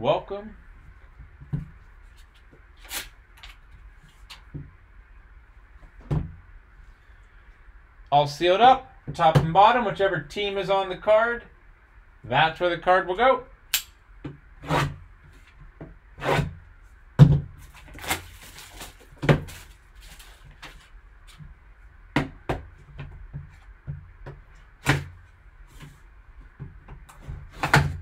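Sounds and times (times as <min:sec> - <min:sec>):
plastic wrap rustling: 0:17.5 - 0:21.4.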